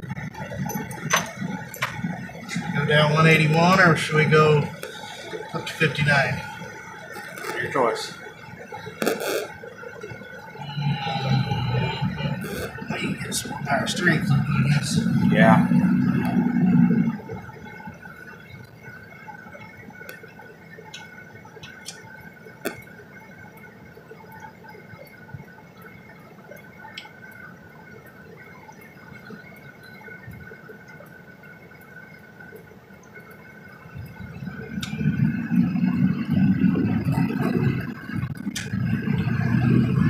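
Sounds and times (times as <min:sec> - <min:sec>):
diesel engine accelerating: 0:00.0 - 0:18.7, 0:34.0 - 0:40.0
quiet steady hum: 0:00.0 - 0:40.0
raindrop ticks: 0:00.0 - 0:40.0.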